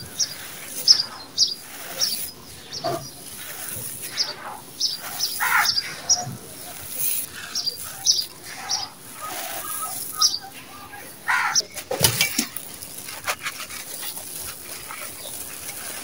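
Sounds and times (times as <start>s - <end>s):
birds chirping: 0.0s - 16.0s
gravel crunching under fingers: 0.0s - 16.0s
pebbles spilling: 0.0s - 16.0s.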